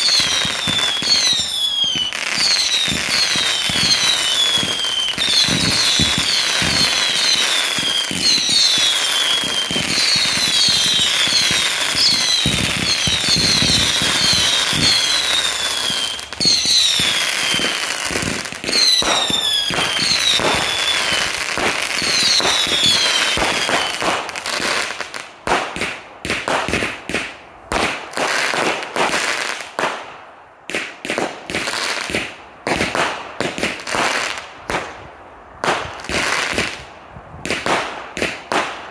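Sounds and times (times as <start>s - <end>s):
firework whistles falling in pitch: 0.0s - 18.0s, 18.6s - 21.3s, 22.0s - 24.0s
firework sharp cracks: 0.0s - 38.9s.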